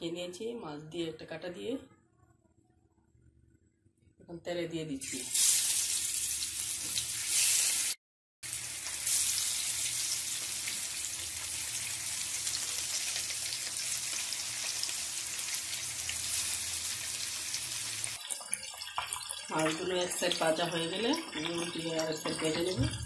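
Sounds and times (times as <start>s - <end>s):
fish frying in hot oil: 5.3s - 22.8s.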